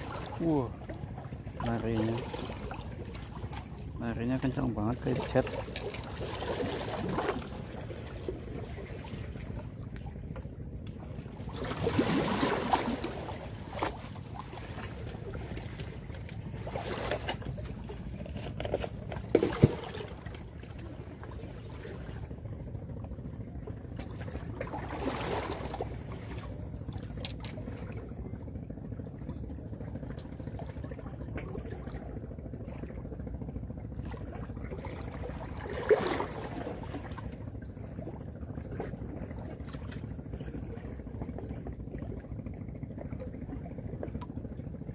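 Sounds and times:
low rumble of wind and sea: 0.0s - 44.9s
sea water splashing on concrete blocks: 11.1s - 20.8s.

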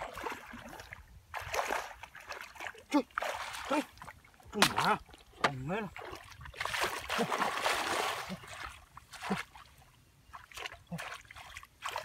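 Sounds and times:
muddy water splashing: 0.0s - 12.0s.

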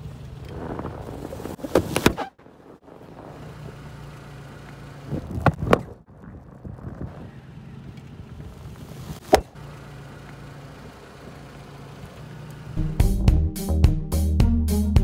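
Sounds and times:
car engine humming: 0.0s - 13.4s.

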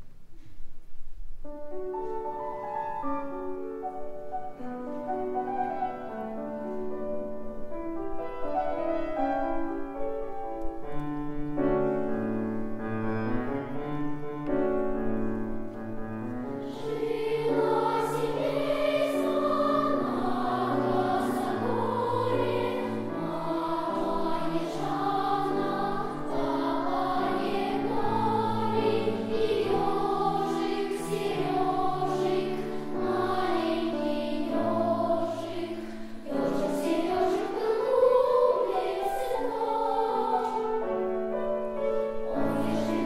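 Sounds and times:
piano notes: 1.4s - 43.0s
children's choir singing: 16.4s - 43.0s.

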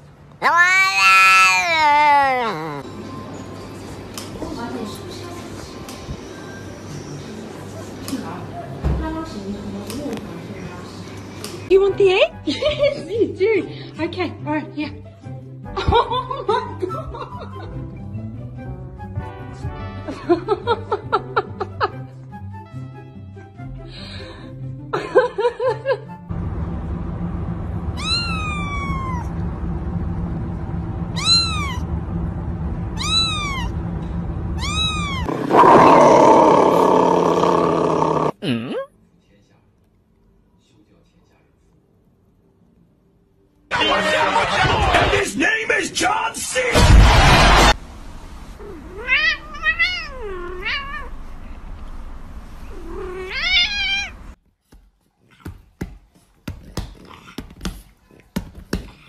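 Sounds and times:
cat meowing: 0.4s - 2.8s, 28.0s - 29.4s, 31.1s - 31.9s, 33.0s - 33.8s, 34.6s - 38.3s, 48.6s - 51.1s, 52.7s - 54.4s
steady low hum: 26.3s - 35.3s
loud rough noise: 46.8s - 48.0s.

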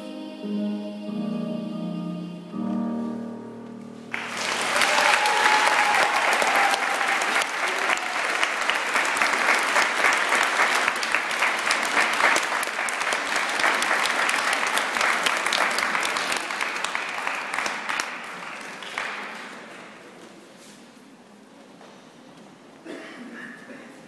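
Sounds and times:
audience applauding: 4.1s - 20.0s.

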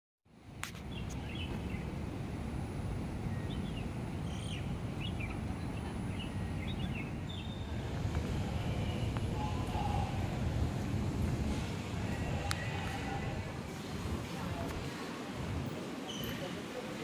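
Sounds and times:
city traffic rumble: 0.3s - 17.0s
birds chirping: 0.8s - 2.5s, 3.2s - 10.8s.

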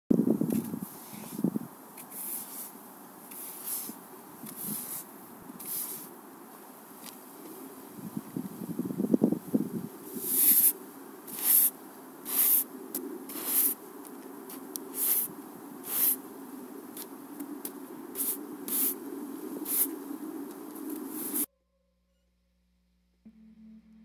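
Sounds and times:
push broom sweeping snow: 0.5s - 7.7s, 10.0s - 16.3s, 16.9s - 21.5s
steady low hum: 10.8s - 24.0s.

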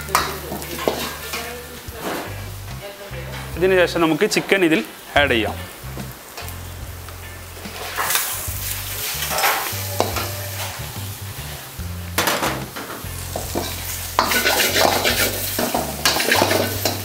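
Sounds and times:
chicken sizzling in a pan: 0.0s - 17.0s
ladle scraping a pan: 0.1s - 2.6s, 7.6s - 11.0s, 12.3s - 17.0s.

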